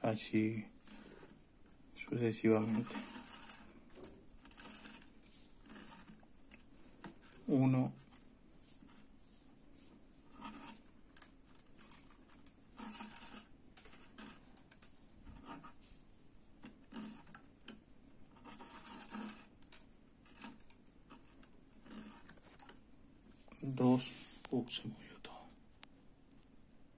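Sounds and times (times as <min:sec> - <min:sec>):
thread rustling: 0:00.7 - 0:17.4.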